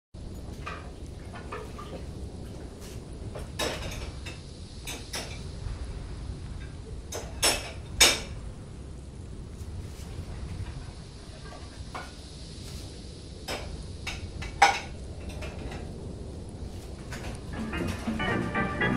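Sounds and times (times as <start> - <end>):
low room hum: 0.2 - 18.9
dishes and utensils clattering: 0.4 - 2.1, 3.4 - 5.4, 7.1 - 8.4, 13.5 - 15.9, 17.1 - 18.9.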